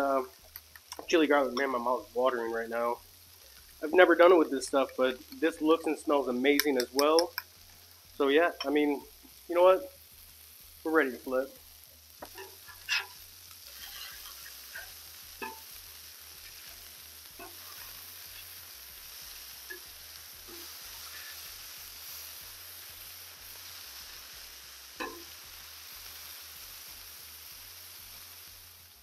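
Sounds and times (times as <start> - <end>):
burger patties sizzling on griddle: 0.0 - 29.0
metal spatula scraping and clicking: 12.2 - 15.6.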